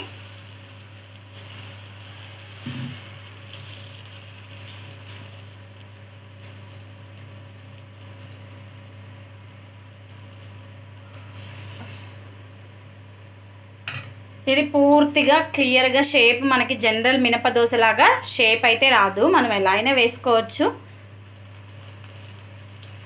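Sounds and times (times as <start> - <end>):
batter sizzling on a pan: 0.0 - 13.9, 20.8 - 23.0
steady low hum: 0.0 - 23.0.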